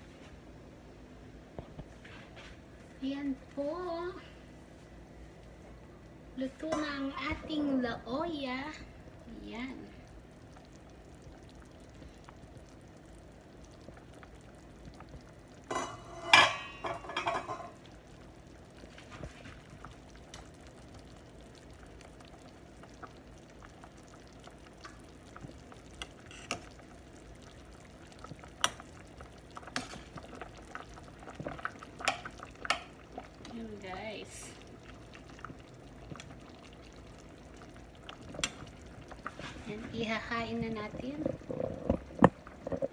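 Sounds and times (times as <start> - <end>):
soup simmering in a pot: 0.3 - 42.9
metal clattering against pot: 15.7 - 17.8
spoon stirring broth: 22.8 - 33.5, 34.6 - 40.0.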